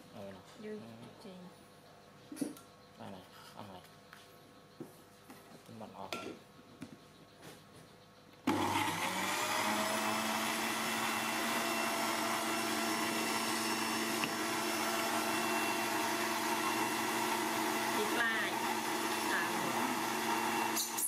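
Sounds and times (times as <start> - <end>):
electric blender whirring: 8.5 - 21.0.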